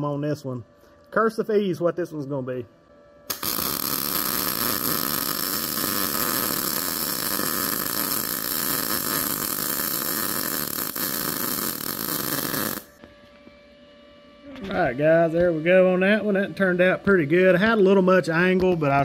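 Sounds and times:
welding arc: 0:03.3 - 0:13.0.

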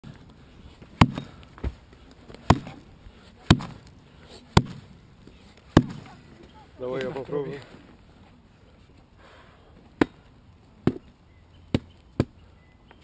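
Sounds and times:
axe chopping into log: 0:01.0 - 0:01.7, 0:02.4 - 0:02.8, 0:03.4 - 0:03.9, 0:04.5 - 0:04.9, 0:05.7 - 0:06.1.

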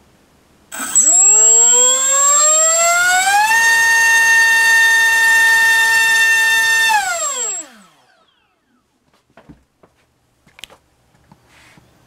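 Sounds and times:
drone motor whine: 0:00.7 - 0:08.6.

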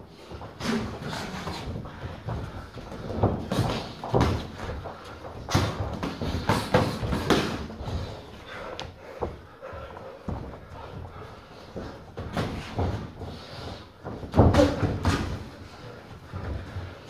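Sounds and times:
boxing gloves thudding: 0:05.4 - 0:08.1.

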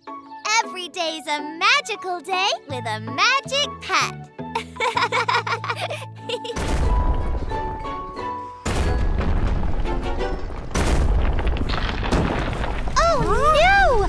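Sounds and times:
music: 0:00.0 - 0:10.8
deep rumbling booms: 0:06.6 - 0:08.1, 0:08.7 - 0:14.0.

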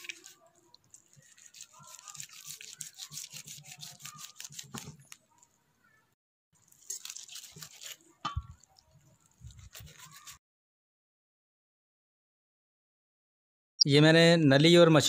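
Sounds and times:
knife scraping meat off bone: 0:00.0 - 0:05.4, 0:06.7 - 0:10.4.

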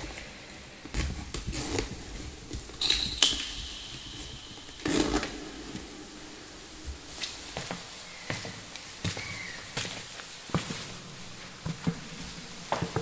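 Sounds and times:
crinkling metallic clink: 0:02.8 - 0:05.9.

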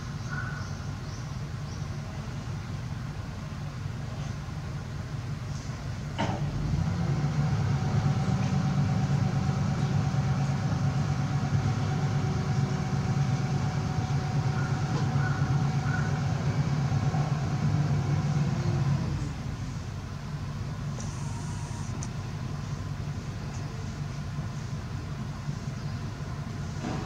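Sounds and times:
machine humming with whine: 0:20.8 - 0:24.0.

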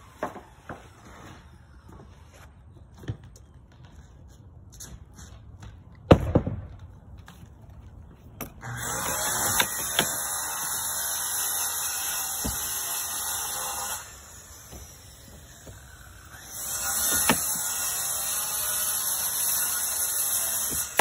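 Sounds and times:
pneumatic nail gun shots: 0:08.6 - 0:15.0, 0:16.4 - 0:18.1.

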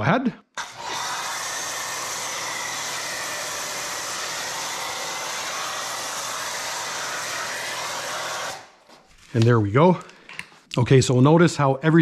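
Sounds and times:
pressure washer foam jet hissing: 0:00.6 - 0:08.8.

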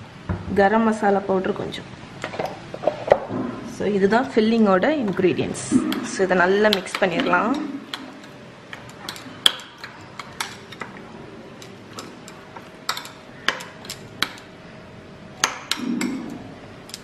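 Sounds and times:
spoon stirring wet filling: 0:04.1 - 0:14.6.

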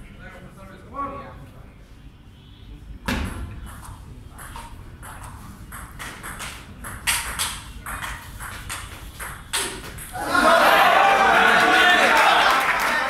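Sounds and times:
table tennis ball knocking: 0:03.1 - 0:10.2.

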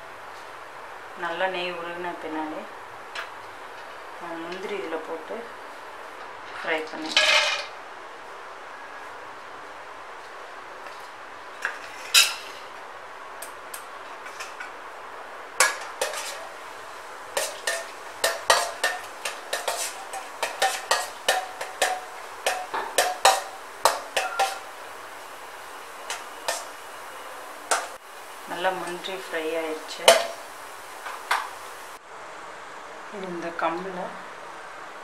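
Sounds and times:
faint frying sizzle: 0:10.1 - 0:32.0
spoon clinking in metal pan: 0:17.4 - 0:24.7, 0:30.0 - 0:30.4.

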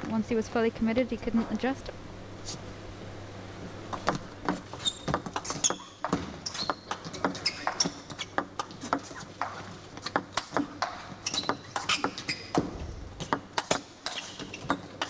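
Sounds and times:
shoes squeaking on floor: 0:04.1 - 0:15.0.

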